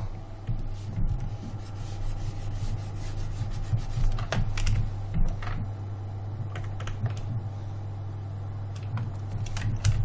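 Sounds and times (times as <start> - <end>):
low hum: 0.0 - 10.0
keyboard keys clicking: 6.5 - 7.3, 8.7 - 10.0.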